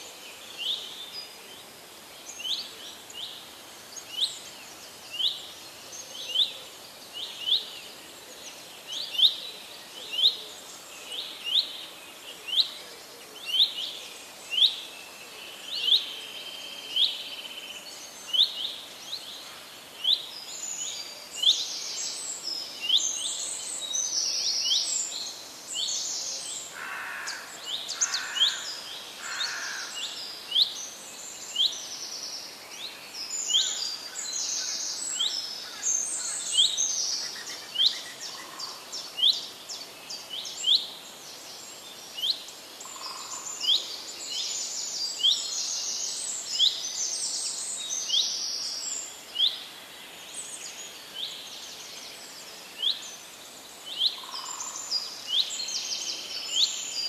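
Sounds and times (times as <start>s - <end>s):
birds twittering: 18.0s - 32.1s, 53.9s - 57.0s.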